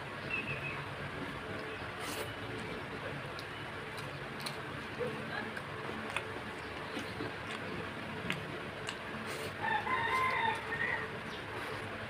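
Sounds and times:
rooster crowing: 0:09.6 - 0:11.3.

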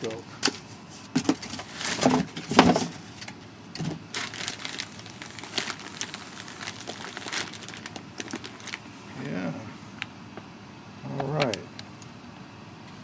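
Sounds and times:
plastic packing bag crinkling: 0:04.0 - 0:08.9.

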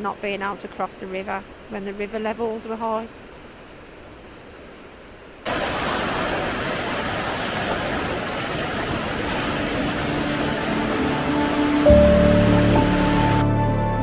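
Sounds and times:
river rushing over rocks: 0:05.5 - 0:13.4.

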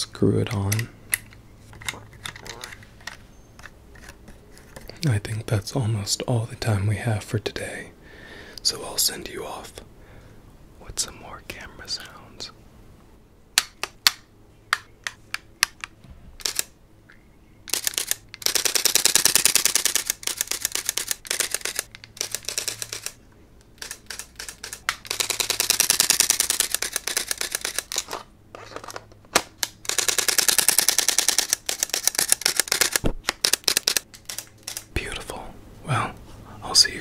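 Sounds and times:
camera burst shooting: 0:17.7 - 0:23.2.

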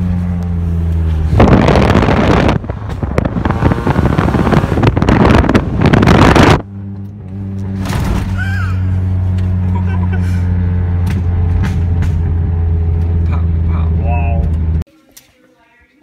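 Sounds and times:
car engine drone: 0:00.0 - 0:14.9
wind noise on microphone: 0:01.2 - 0:06.7.

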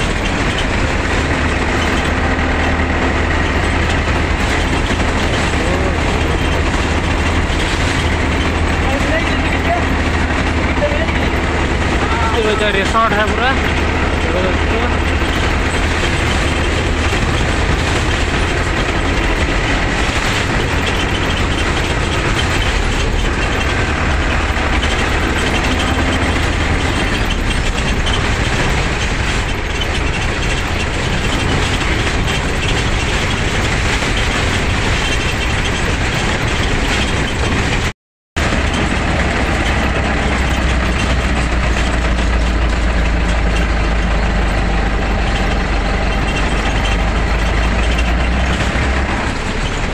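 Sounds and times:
bus engine running: 0:00.0 - 0:49.9
road noise: 0:00.0 - 0:49.9.

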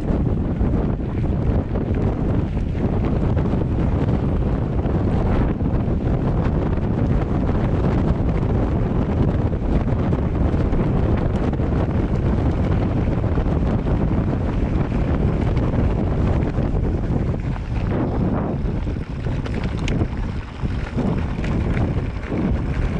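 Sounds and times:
wind buffeting microphone: 0:00.0 - 0:22.9.

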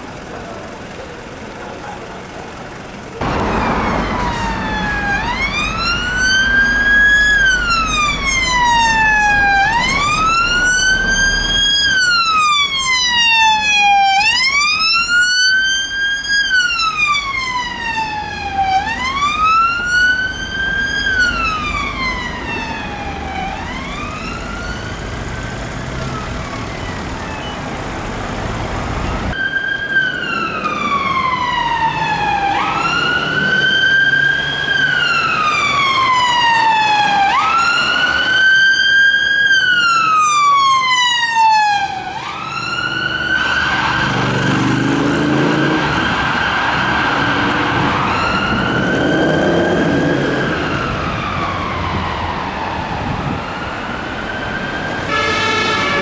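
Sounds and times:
ambulance siren sweeping: 0:03.2 - 0:56.0
police siren wailing: 0:03.2 - 0:56.0.

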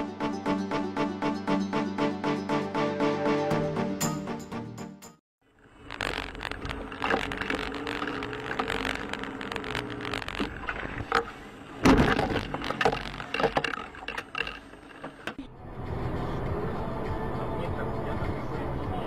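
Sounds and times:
car engine and road noise: 0:05.6 - 0:19.0
rattles and clicks: 0:05.8 - 0:15.4.

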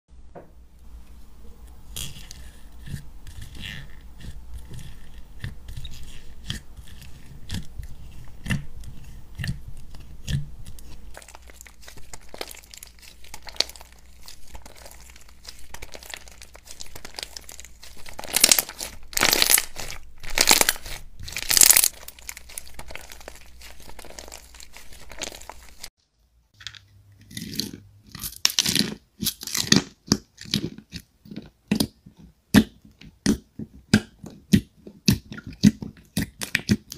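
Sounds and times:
slime crackly tearing: 0:09.4 - 0:25.9
slime crackles and pops: 0:11.2 - 0:25.9.

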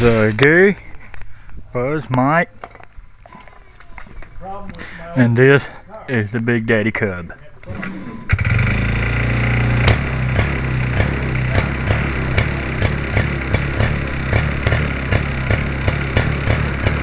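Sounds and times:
two-stroke engine running steadily: 0:07.7 - 0:17.0.

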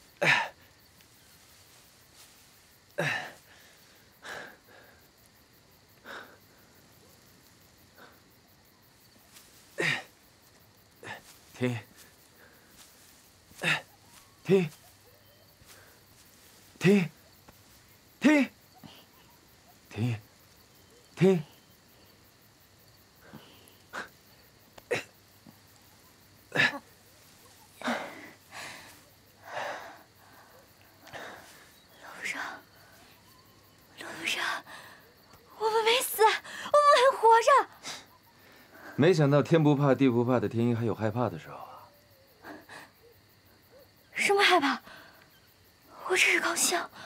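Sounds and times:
heavy breaths: 0:00.0 - 0:22.2, 0:23.0 - 0:35.5, 0:37.7 - 0:39.0, 0:44.6 - 0:46.1
man groaning: 0:03.0 - 0:03.3
person gasping: 0:03.0 - 0:05.0, 0:27.8 - 0:32.6.

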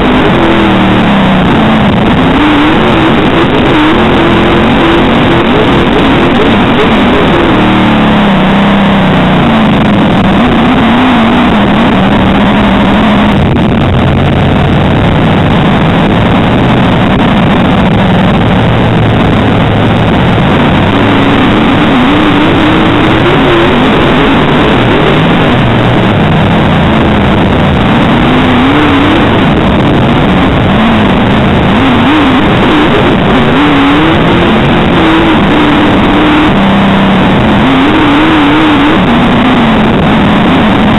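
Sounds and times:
race car engine revving: 0:00.0 - 0:40.9.

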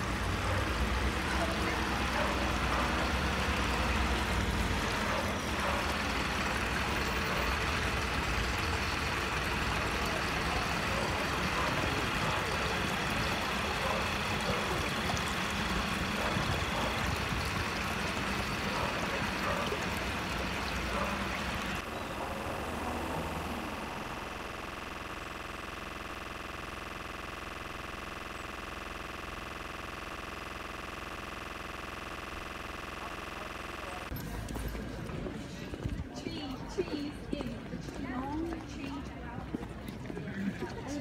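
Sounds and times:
slow-moving van: 0:00.0 - 0:27.8.

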